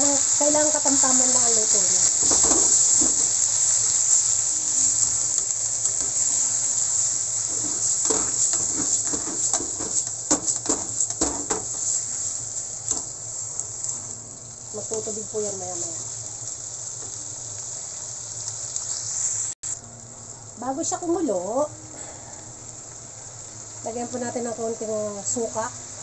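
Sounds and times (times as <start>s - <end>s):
squid sizzling in hot oil: 0.0s - 26.0s
spatula scraping pan: 7.4s - 12.3s.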